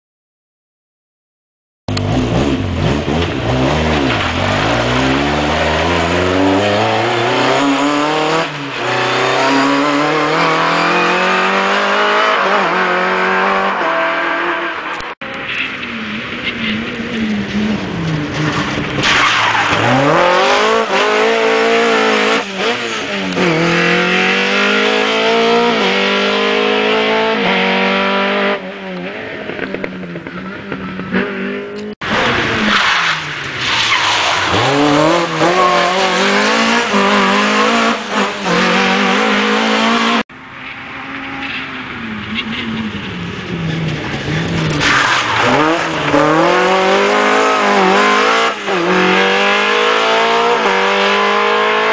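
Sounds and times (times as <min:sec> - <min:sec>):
rally car engine revving past: 0:43.6 - 0:51.9.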